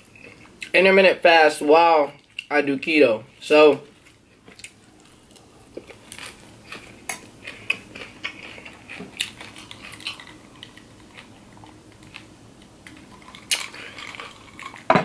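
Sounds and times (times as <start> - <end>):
crunchy chewing: 3.8 - 14.9
person sipping: 13.2 - 14.8.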